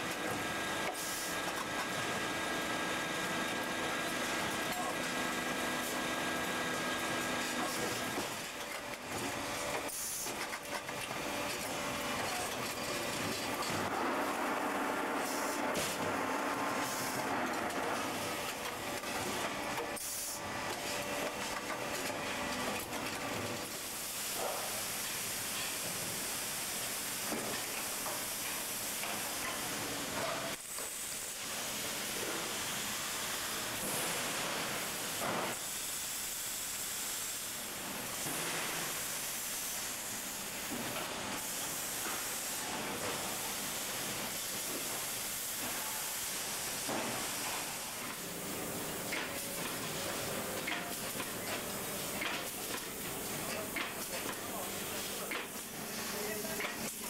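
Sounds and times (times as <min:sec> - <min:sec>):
factory hissing din: 0:41.4 - 0:57.0.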